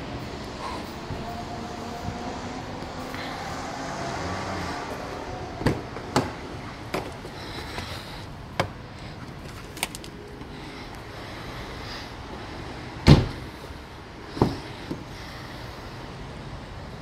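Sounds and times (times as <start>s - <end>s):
car door knocks: 13.0s - 13.4s.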